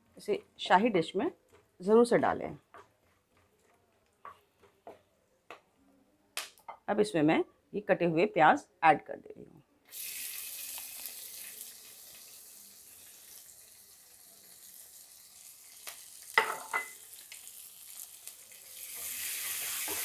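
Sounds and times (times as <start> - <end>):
wooden spatula stirring: 2.7 - 5.1
onions sizzling in oil: 9.9 - 20.0.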